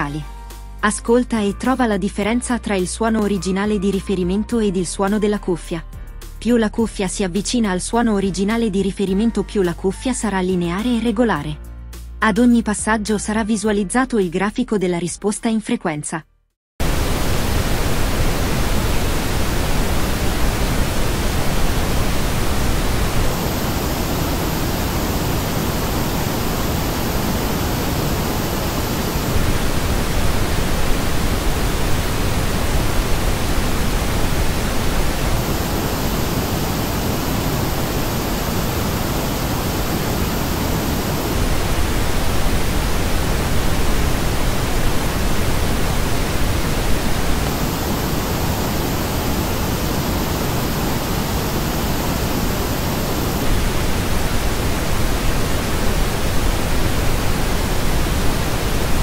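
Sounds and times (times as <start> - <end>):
steady pink noise: 16.8 - 59.0.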